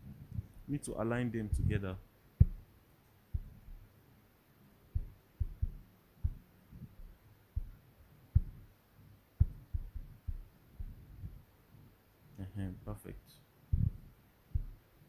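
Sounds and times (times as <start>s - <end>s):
fingertip taps on touchscreen: 2.4s - 2.6s.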